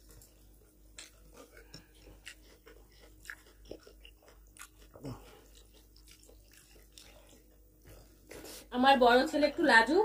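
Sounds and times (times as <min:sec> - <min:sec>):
chewing: 0:00.0 - 0:08.6.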